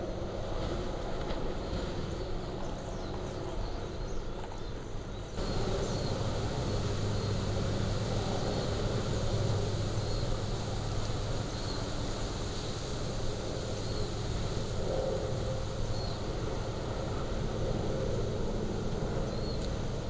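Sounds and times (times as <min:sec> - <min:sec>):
lava fountain rushing and rumbling: 0:05.4 - 0:20.0.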